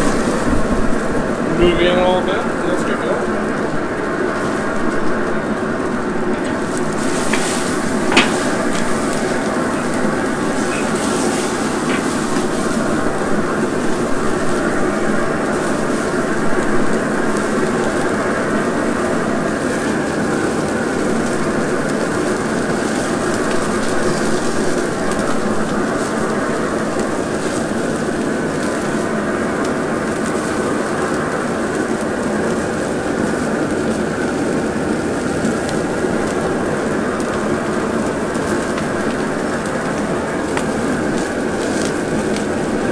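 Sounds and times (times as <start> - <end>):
steaks sizzling on grill: 0.0 - 42.9.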